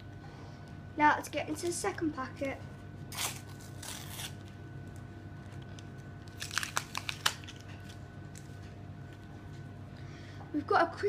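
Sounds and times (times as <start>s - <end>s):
wrapper crinkling: 3.1s - 4.6s, 5.4s - 8.6s
wrapper tearing: 3.1s - 4.6s, 5.4s - 8.5s.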